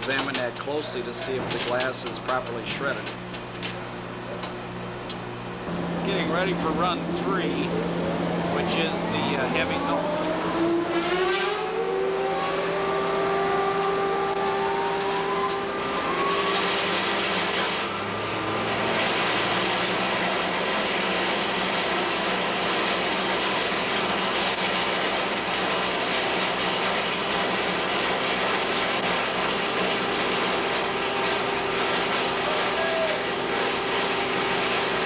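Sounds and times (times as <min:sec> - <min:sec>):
hammer mill running: 0:00.0 - 0:35.0
short rising whine: 0:05.4 - 0:21.1.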